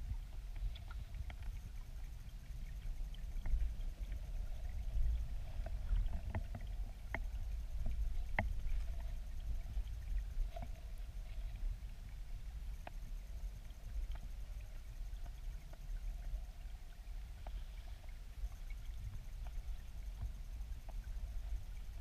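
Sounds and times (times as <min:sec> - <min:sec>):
muffled underwater river rumble: 0:00.0 - 0:22.0.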